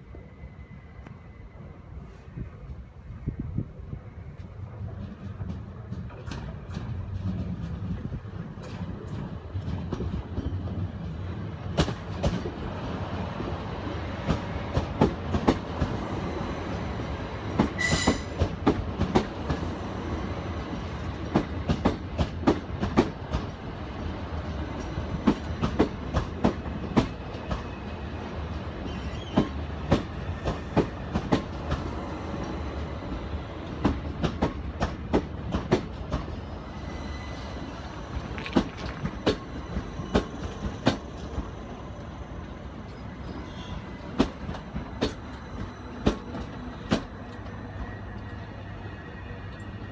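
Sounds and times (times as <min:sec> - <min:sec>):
train rumble: 0:00.0 - 0:49.9
train wheels clicking over rail joints: 0:04.4 - 0:13.0, 0:14.1 - 0:36.6, 0:37.9 - 0:42.1, 0:42.8 - 0:48.4
high squeal: 0:36.4 - 0:38.3, 0:39.0 - 0:44.1.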